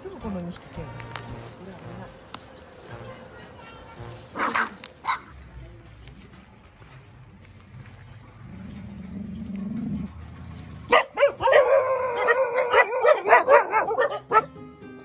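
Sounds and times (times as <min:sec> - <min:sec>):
puppies barking and yipping: 0:04.1 - 0:05.4, 0:09.6 - 0:14.6.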